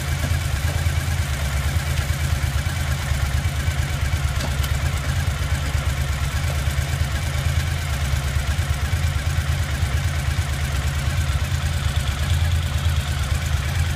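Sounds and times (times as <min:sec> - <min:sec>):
motorcycle engine idling: 0:00.0 - 0:13.9.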